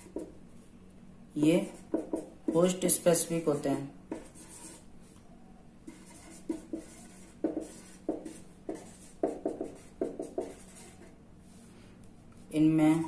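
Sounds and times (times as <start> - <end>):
faint steady hum: 0.0 - 13.0
marker pen squeaking on paper: 5.9 - 11.1.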